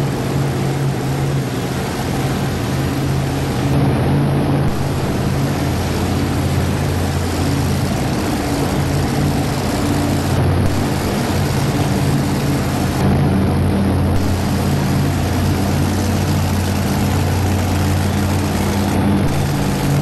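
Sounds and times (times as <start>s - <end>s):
truck engine idling: 4.6s - 20.0s.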